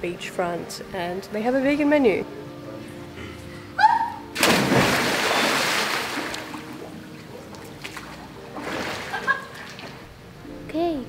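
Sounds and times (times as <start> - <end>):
person splashing into pool: 4.4 - 6.8, 7.6 - 10.0
water sloshing: 4.4 - 10.2.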